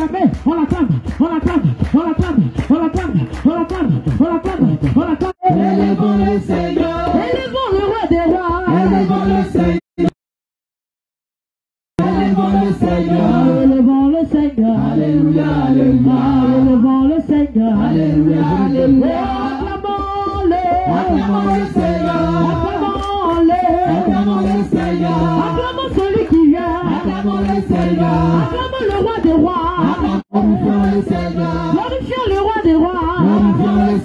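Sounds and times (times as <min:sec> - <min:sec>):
group singing worship song: 0:05.4 - 0:10.2, 0:12.0 - 0:34.0.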